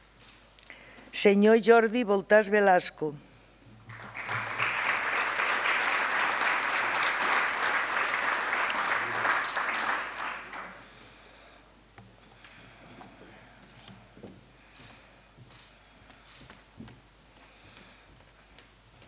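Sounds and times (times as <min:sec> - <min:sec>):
audience applauding: 0:03.8 - 0:10.9.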